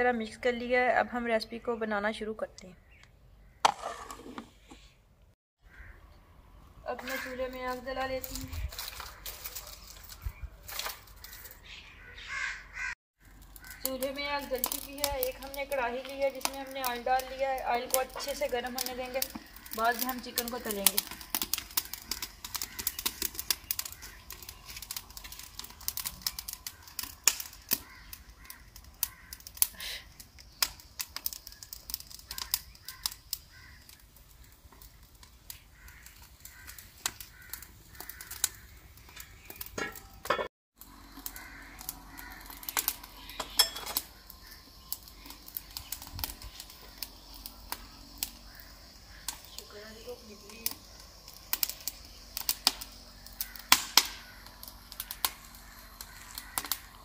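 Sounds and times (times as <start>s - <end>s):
firewood crackling and popping: 6.9s - 11.6s, 13.2s - 57.0s.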